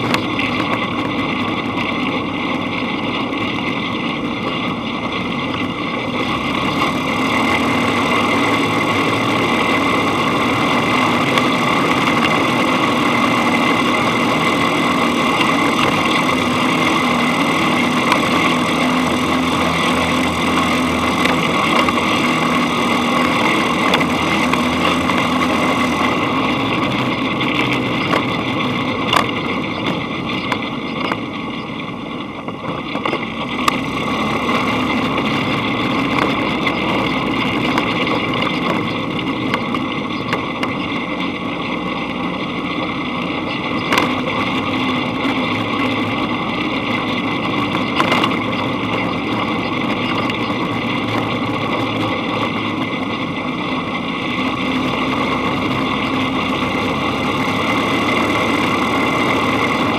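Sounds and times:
dune buggy engine running: 0.0s - 59.9s.

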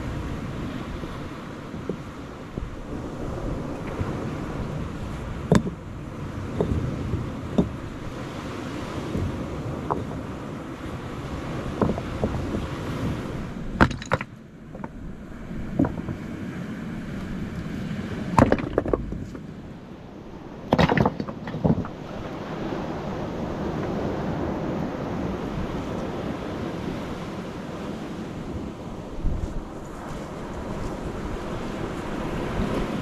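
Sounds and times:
surf washing over rocky shore: 0.0s - 33.0s
stones clacking together: 5.5s - 5.8s, 13.8s - 15.0s, 15.8s - 16.2s, 18.4s - 19.5s, 20.7s - 22.0s.

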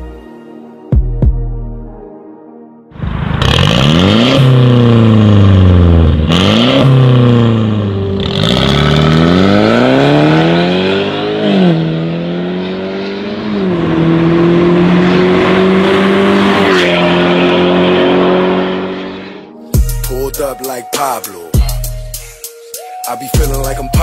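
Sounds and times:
car engine accelerating hard: 3.0s - 19.5s.

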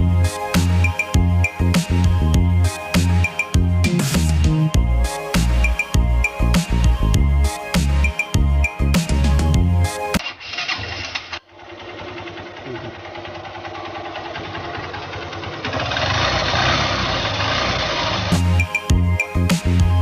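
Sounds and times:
electronic music: 0.0s - 10.2s, 18.3s - 20.0s
motorcycle engine running: 10.5s - 19.1s.

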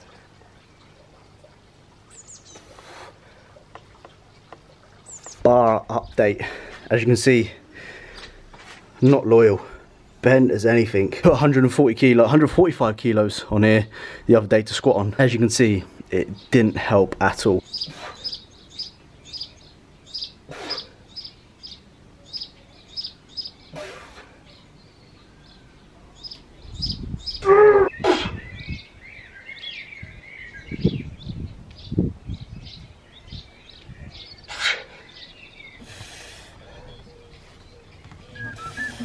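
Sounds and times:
small bird chirping: 17.6s - 23.8s, 24.5s - 35.8s.

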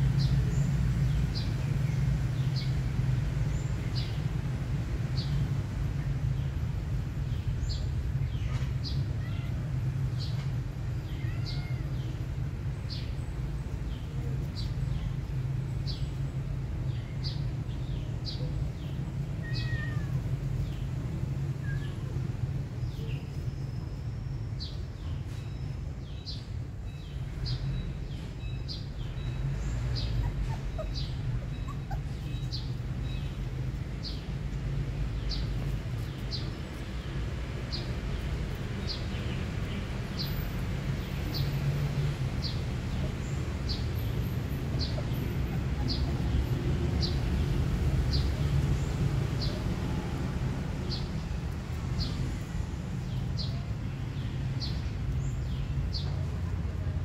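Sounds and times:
small animal squeaking: 30.1s - 32.6s.

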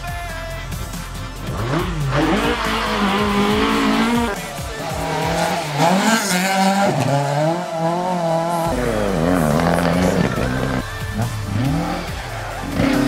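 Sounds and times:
rally car engines at full throttle: 0.0s - 13.0s.

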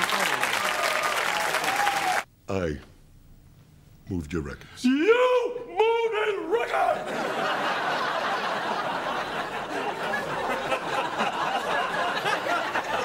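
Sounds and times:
audience laughing: 0.0s - 0.7s, 6.8s - 13.0s.

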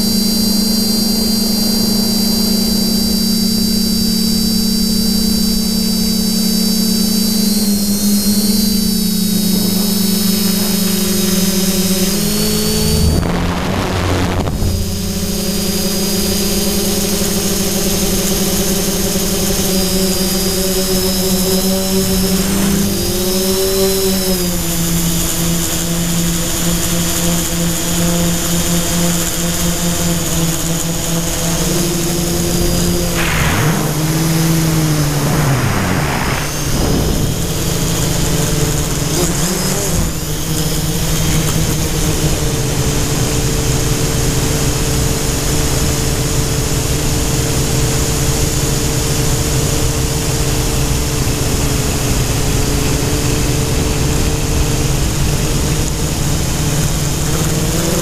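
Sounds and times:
drone motors whining: 0.0s - 27.2s, 30.6s - 41.2s.

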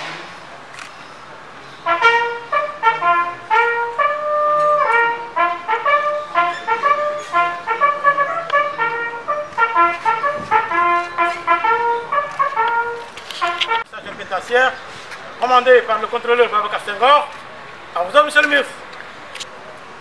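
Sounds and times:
brass horn playing a call: 1.8s - 13.9s.

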